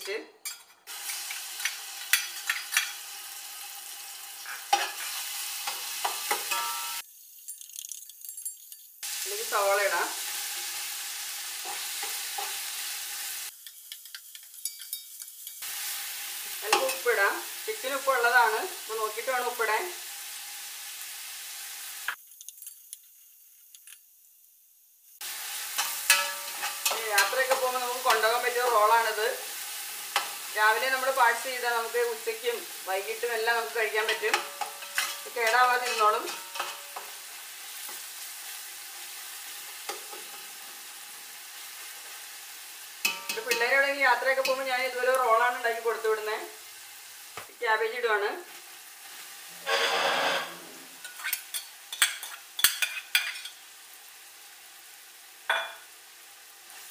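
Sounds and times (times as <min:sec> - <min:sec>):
paste sizzling in hot oil: 0:00.9 - 0:56.9
metal spatula scraping pot: 0:34.1 - 0:37.2, 0:49.6 - 0:53.6.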